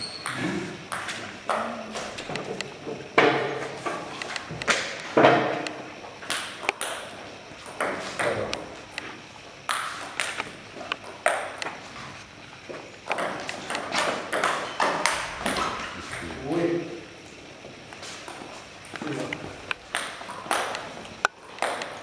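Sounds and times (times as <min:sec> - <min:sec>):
table tennis ball hits: 0:00.0 - 0:02.5, 0:04.6 - 0:08.7, 0:09.7 - 0:11.7, 0:13.1 - 0:16.3, 0:18.2 - 0:22.0.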